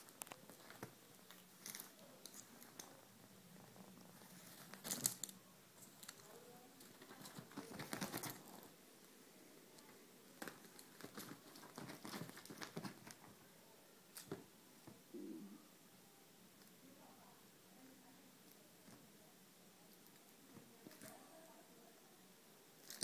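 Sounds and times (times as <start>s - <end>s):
cat scrambling on fabric: 7.0s - 8.6s, 10.5s - 13.3s.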